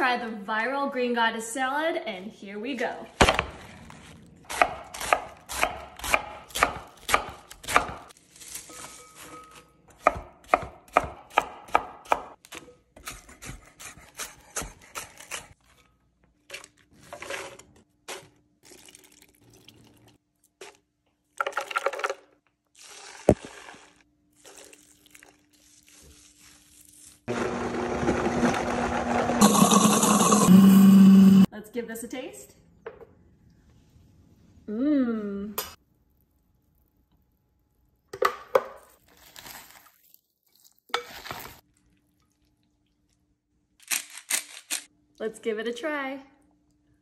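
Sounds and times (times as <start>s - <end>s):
knife chopping on wooden board: 4.5s - 8.1s, 10.0s - 15.4s
blender whirring: 27.3s - 31.5s.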